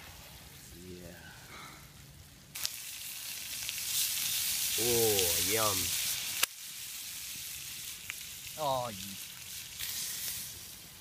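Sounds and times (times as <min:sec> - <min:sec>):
fish sizzling in butter: 0:02.5 - 0:11.0.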